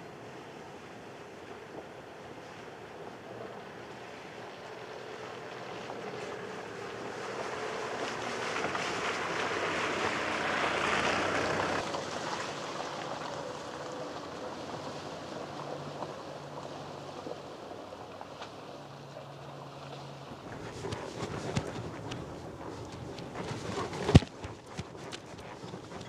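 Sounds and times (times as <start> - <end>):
engine humming quietly: 0.0 - 26.0
tyres splashing through puddle: 4.6 - 26.0
tyres crunching on wet gravel: 5.8 - 26.0.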